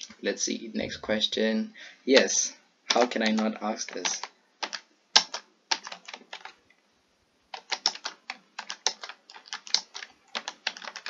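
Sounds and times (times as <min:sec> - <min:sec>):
computer keyboard typing: 0:02.9 - 0:06.6, 0:07.5 - 0:11.0.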